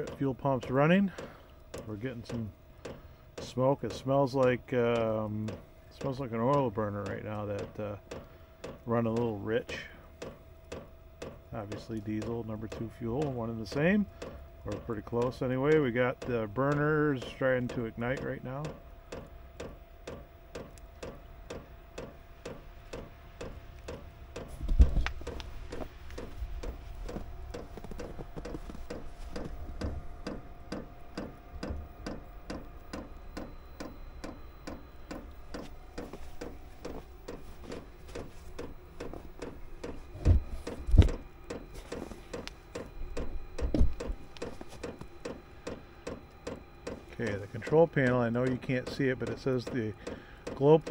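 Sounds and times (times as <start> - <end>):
steady hum: 0.0 - 50.9
fuel pump ticking: 1.1 - 40.0, 42.3 - 47.4, 48.0 - 50.9
low thumps: 18.6 - 47.2.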